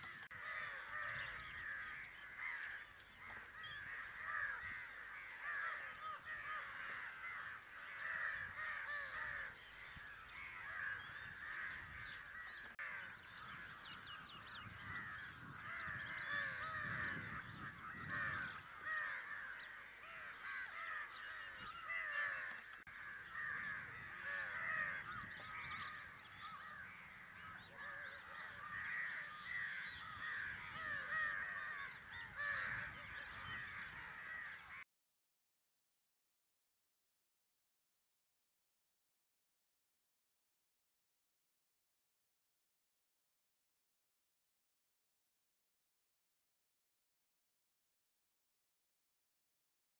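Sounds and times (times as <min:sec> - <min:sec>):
chorus of birds calling: 0:00.0 - 0:34.8.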